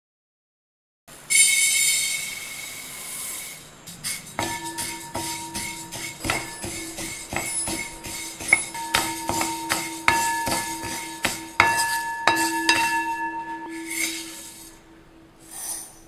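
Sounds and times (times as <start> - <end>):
spoon knocking a ringing brass pan: 4.4 - 15.0.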